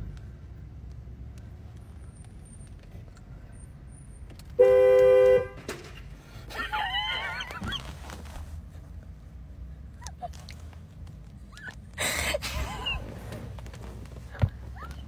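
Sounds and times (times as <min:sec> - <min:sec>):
car horn honking: 0:04.6 - 0:05.7
person yelping: 0:06.6 - 0:07.8.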